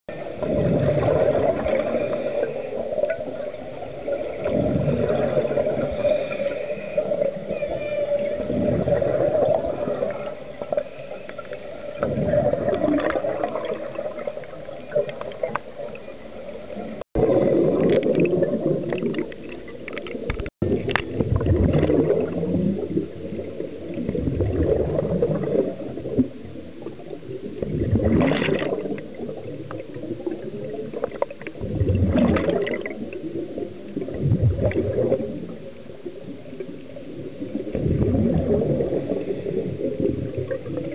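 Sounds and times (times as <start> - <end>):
regulator bubbles gurgling: 0.1 - 40.9
steady underwater hum: 0.1 - 40.9.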